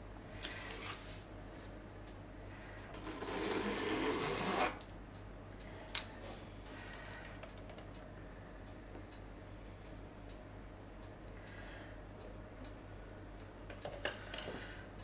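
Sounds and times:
rasping scrape: 3.0s - 4.8s.

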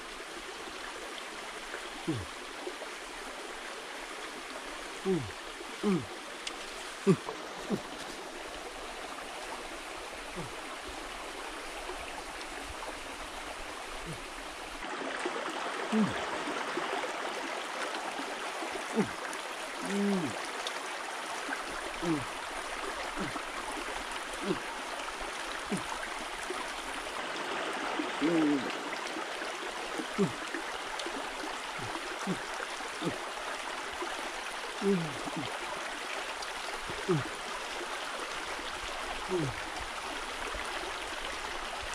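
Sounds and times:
stream running over rocks: 0.0s - 41.9s.

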